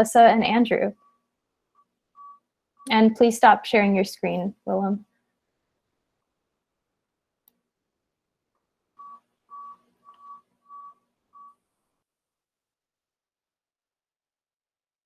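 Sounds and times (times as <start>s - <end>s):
short electronic beeps: 2.2s - 2.9s, 9.0s - 11.6s.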